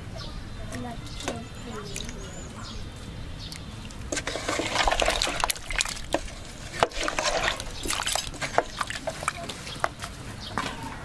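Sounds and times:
liquid sloshing in a pot: 3.8s - 10.2s
ladle knocking and scraping pot: 4.1s - 10.1s.

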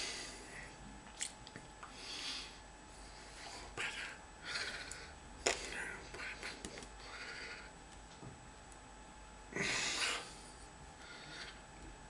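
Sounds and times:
person breathing: 0.0s - 0.8s, 1.9s - 7.8s, 9.6s - 11.6s.

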